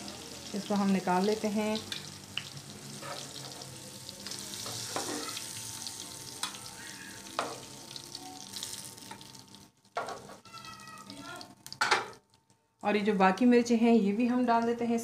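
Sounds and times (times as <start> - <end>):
chillies sizzling in hot oil: 0.0 - 13.6
metal tongs clicking on pan: 6.4 - 6.6.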